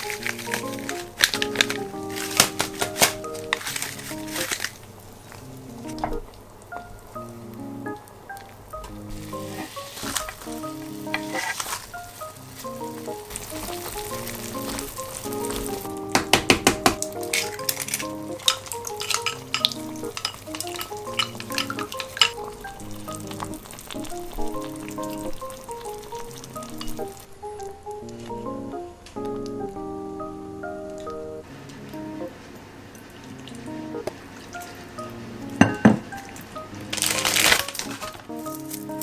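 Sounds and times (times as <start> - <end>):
light background music: 0.0 - 4.7, 5.6 - 32.5, 33.4 - 39.0
soup simmering and sizzling: 0.0 - 28.4, 31.4 - 39.0
egg cracked and beaten in bowl: 13.6 - 25.2.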